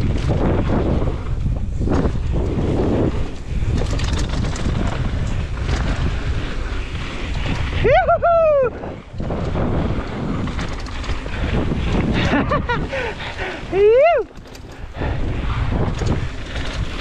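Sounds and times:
bike tyres rolling on dirt: 0:00.0 - 0:17.0
wind rushing over microphone: 0:00.0 - 0:17.0
person whooping: 0:07.8 - 0:09.0, 0:13.6 - 0:14.3.

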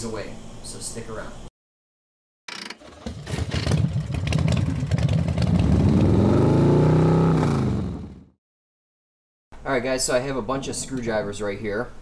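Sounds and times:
motorcycle engine revving: 0:02.7 - 0:08.4.

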